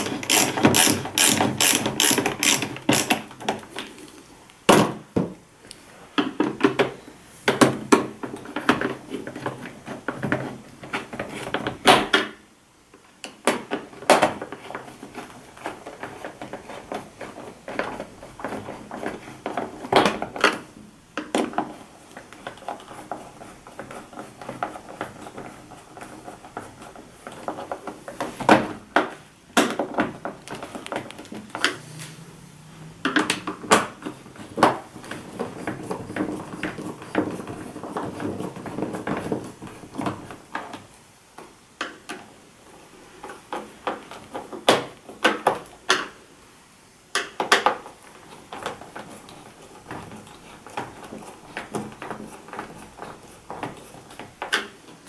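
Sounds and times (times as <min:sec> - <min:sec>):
screwdriver clicking on plastic: 0:00.0 - 0:03.2
scraping and rustling: 0:13.7 - 0:20.8, 0:21.4 - 0:41.0, 0:47.7 - 0:55.0.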